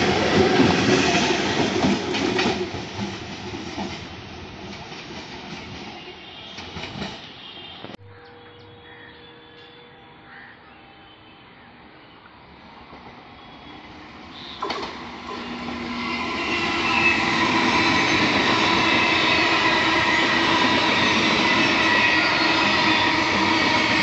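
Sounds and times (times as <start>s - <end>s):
train wheels on rails: 0.0s - 8.0s, 12.8s - 24.0s.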